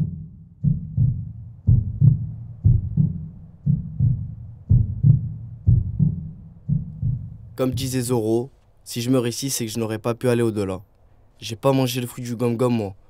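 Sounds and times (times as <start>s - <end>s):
heartbeat thumps: 0.0s - 8.2s.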